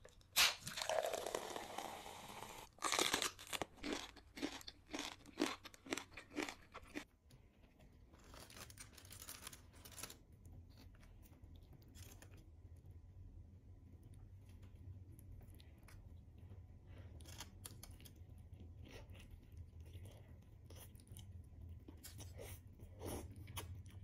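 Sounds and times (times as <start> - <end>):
crunching bites and chewing: 2.7 - 7.1, 16.9 - 21.3.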